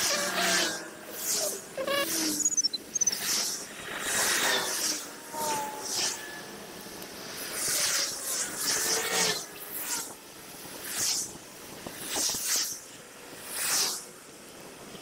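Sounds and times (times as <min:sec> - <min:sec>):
faint whining tones: 0:00.1 - 0:07.4.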